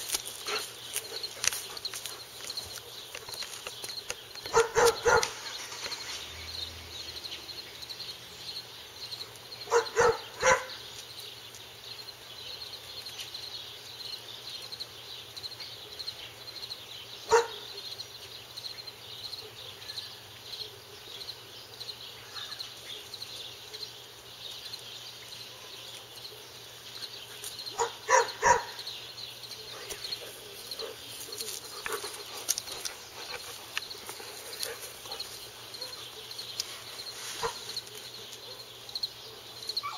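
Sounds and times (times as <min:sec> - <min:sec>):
dog barking: 0:04.5 - 0:05.5, 0:09.7 - 0:10.8, 0:17.3 - 0:17.8, 0:27.8 - 0:28.9, 0:34.6 - 0:36.3, 0:37.4 - 0:38.7, 0:39.3 - 0:39.9.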